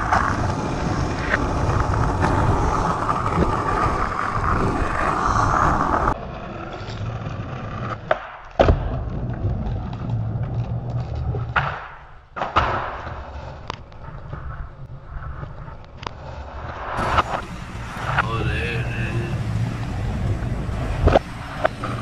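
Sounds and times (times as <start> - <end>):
skateboard clacks: 0.0 - 16.4, 17.0 - 22.0
skateboard wheels rolling on asphalt: 0.0 - 22.0.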